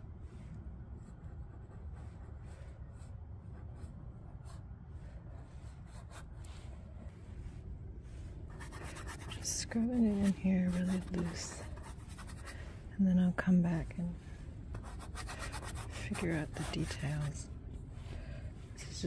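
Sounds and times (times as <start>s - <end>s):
steady low rumble: 0.0s - 19.0s
paintbrush scrubbing paint: 8.1s - 12.6s, 14.7s - 17.5s.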